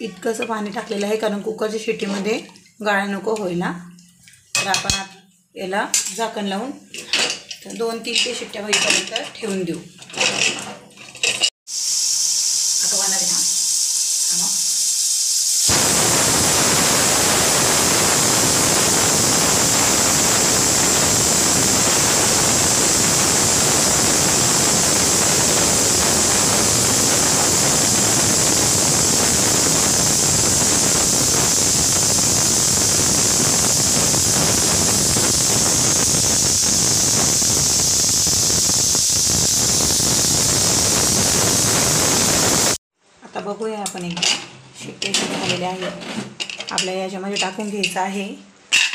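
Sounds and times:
pressure cooker whistling: 11.7 - 42.8.

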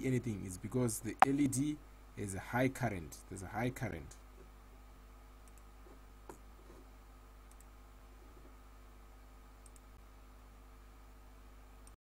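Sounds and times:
faint room hum: 0.0 - 12.0
computer mouse clicks: 5.4 - 5.7, 7.5 - 7.7, 9.6 - 9.9.

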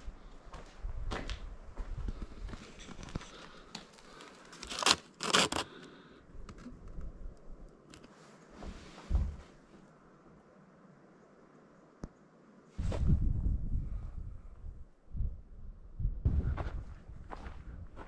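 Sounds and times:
paper crinkling: 2.8 - 5.9
paper rustling: 4.1 - 5.8.

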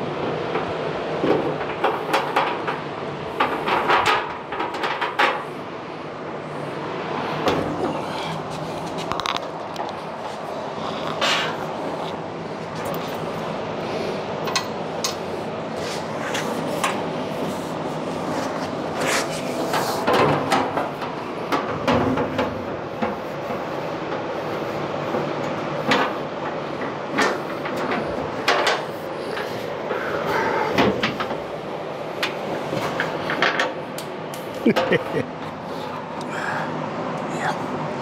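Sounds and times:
shop fan running: 0.0 - 38.0.

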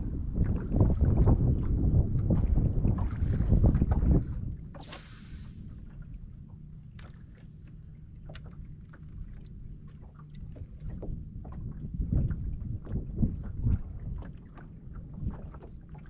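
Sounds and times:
waves lapping against a boat hull: 0.0 - 16.0
light ticks and splashes: 4.8 - 16.0.

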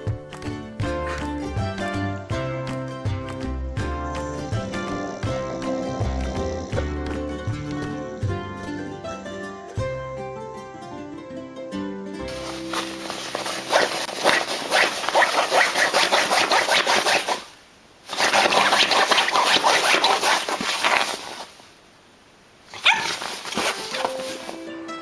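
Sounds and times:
dog vocalising: 3.8 - 8.9, 13.2 - 17.5, 18.1 - 21.2, 22.7 - 24.4
dog crying: 4.0 - 6.8, 22.7 - 24.4.

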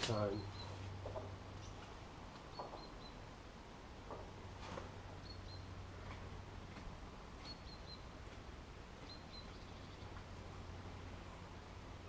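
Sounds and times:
low steady hum: 0.0 - 12.0
high bird chirps: 2.4 - 3.2, 7.4 - 8.1, 9.0 - 10.1.

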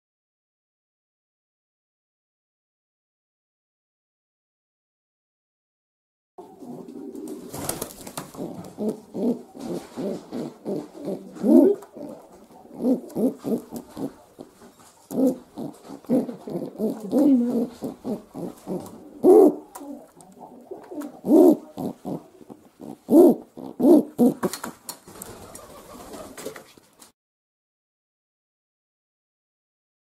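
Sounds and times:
pigeon cooing: 6.4 - 26.6.

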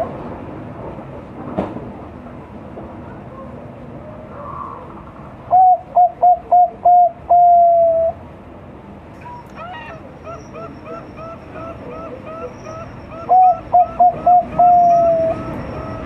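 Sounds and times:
dove cooing: 5.5 - 8.2, 9.6 - 16.0.

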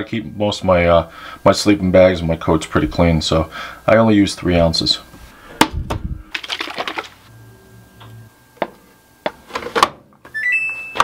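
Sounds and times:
washing machine rising chime: 10.3 - 11.0.

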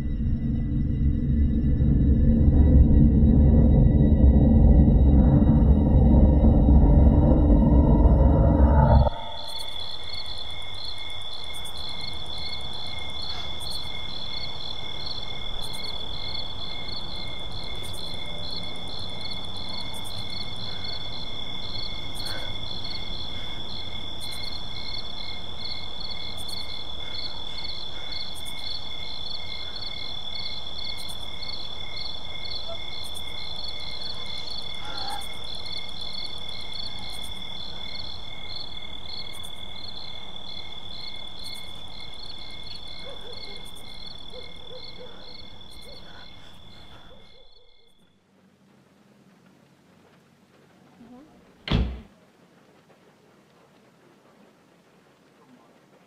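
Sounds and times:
low background rumble: 0.0 - 9.9
crickets chirping: 0.0 - 56.0.

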